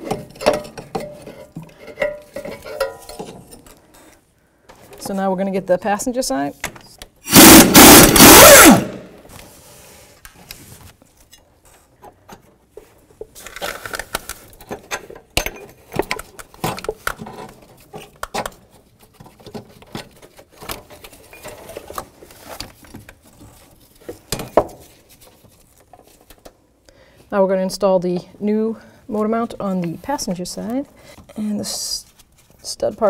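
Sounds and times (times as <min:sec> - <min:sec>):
pneumatic impact gun: 0:07.3 - 0:09.1.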